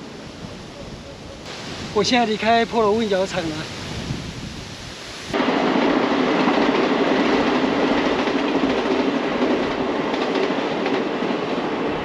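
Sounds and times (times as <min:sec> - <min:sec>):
train wheels on rails: 0:05.3 - 0:12.0.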